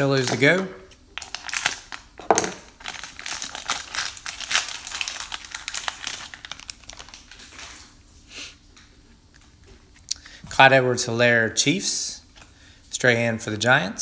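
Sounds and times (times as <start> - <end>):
plastic wrapper crinkling: 0.0 - 8.0.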